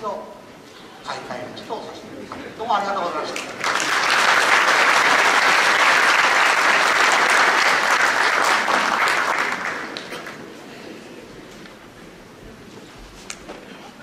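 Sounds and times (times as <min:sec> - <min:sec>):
audience applauding: 0:03.4 - 0:10.5.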